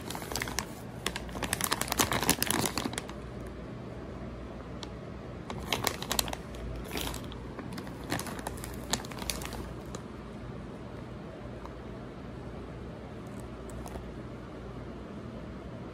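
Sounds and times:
plastic bags crinkling: 0.0s - 3.2s, 5.5s - 10.0s
low background hum: 0.0s - 15.9s.

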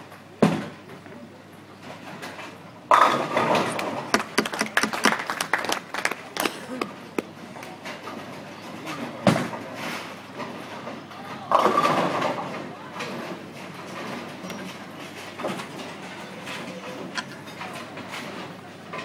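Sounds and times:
bowling pins crashing: 2.9s - 4.8s, 9.2s - 14.4s
bowling ball rolling down lane: 2.9s - 5.2s.

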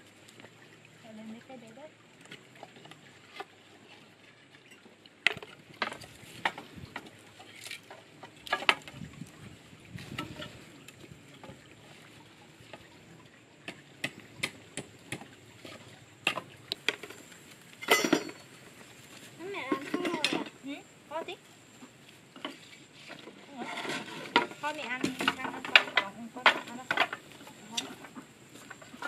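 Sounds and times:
bamboo pieces clattering: 5.2s - 9.0s, 15.6s - 20.6s, 22.4s - 29.0s.

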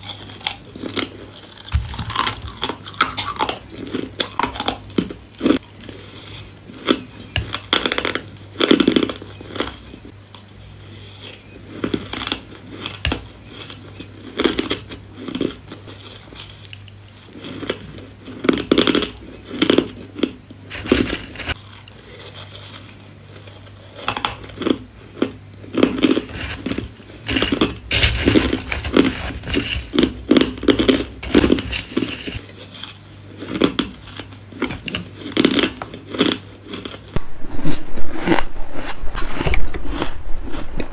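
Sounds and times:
chewing crunchy ice: 0.0s - 40.9s.

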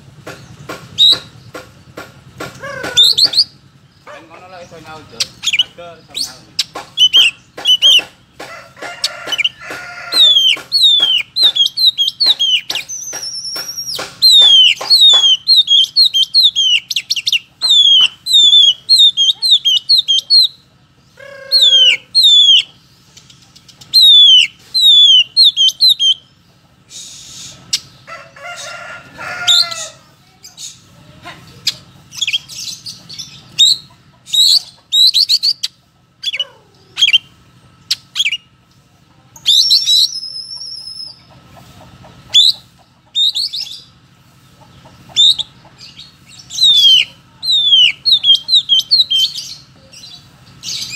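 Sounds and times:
bird singing whistles: 1.0s - 1.3s, 7.0s - 8.0s, 10.3s - 20.6s, 21.6s - 22.7s, 24.0s - 26.2s, 33.6s - 36.4s, 39.4s - 41.2s, 45.2s - 45.5s, 46.5s - 49.4s.

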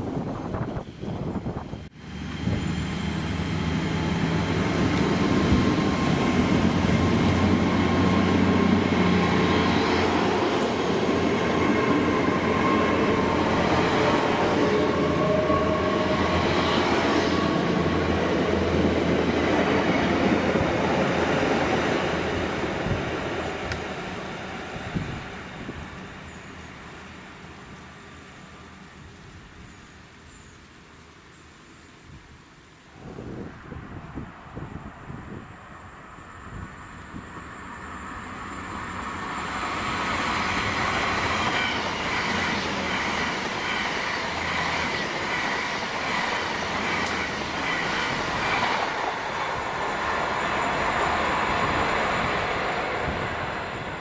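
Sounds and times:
diesel train engine whine: 0.1s - 21.0s, 33.0s - 54.0s.

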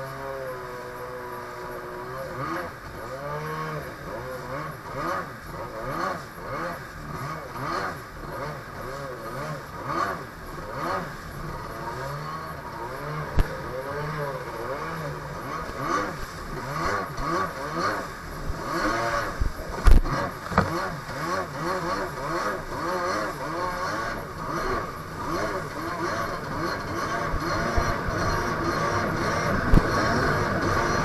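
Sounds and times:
jet ski engine revving: 0.0s - 31.0s
rush of water and spray: 0.1s - 31.0s
hull slapping waves: 15.0s - 31.0s.

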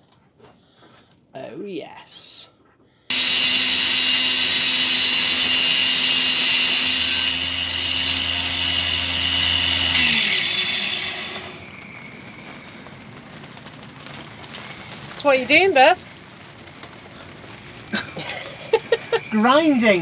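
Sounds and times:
angle grinder on metal: 3.1s - 11.6s
motor winding down: 3.1s - 11.6s.

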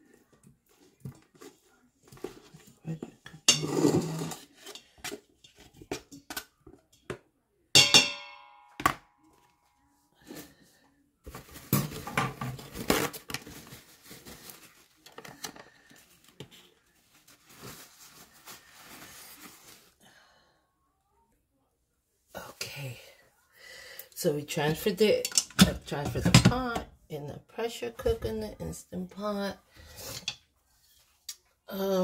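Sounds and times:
food scraped into metal pot: 3.5s - 5.1s
sharp metal clank ringing: 7.8s - 8.8s.

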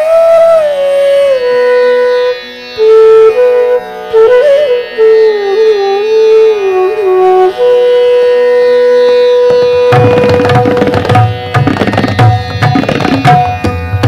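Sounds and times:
flutes holding long note: 0.0s - 11.6s
tabla drumming: 9.4s - 14.0s.

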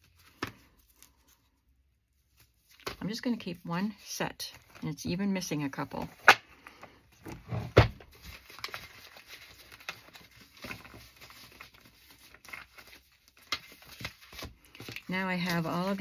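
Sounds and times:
paper cards rustling and clicking: 0.0s - 1.6s, 4.5s - 5.0s, 8.0s - 16.0s.

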